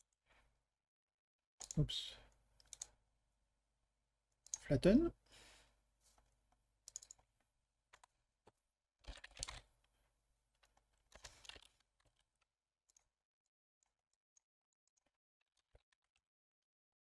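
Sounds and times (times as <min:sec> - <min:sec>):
keyboard typing: 0:02.6 - 0:03.0, 0:06.9 - 0:07.3, 0:09.0 - 0:09.6
mouse clicks: 0:06.9 - 0:07.2.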